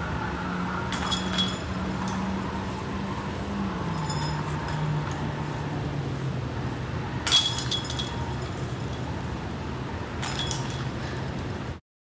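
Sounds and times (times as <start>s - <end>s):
steady low hum: 0.0s - 11.8s
basket chains rattling: 0.9s - 2.7s, 3.4s - 6.4s, 7.2s - 11.7s.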